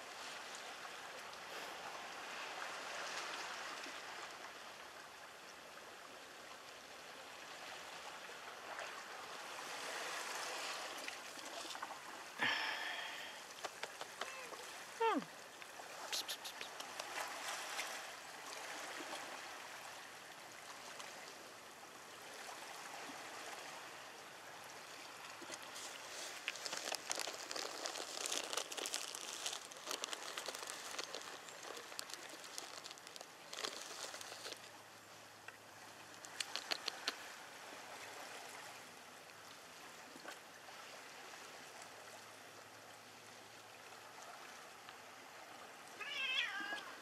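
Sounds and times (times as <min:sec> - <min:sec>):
water rushing: 0:07.1 - 0:47.0
fine crackling: 0:25.6 - 0:34.7.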